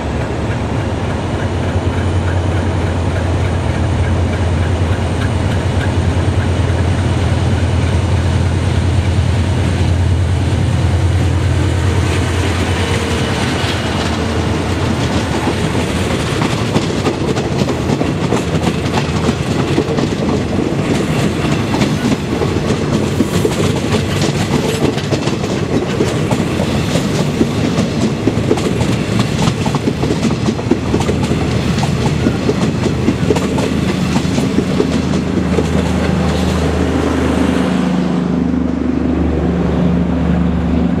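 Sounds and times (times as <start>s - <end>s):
train wheels clacking on rails: 0.0s - 10.0s, 11.2s - 37.6s.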